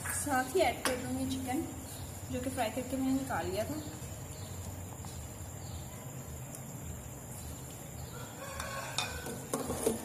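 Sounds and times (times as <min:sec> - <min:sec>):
steady low hum: 0:00.0 - 0:08.4.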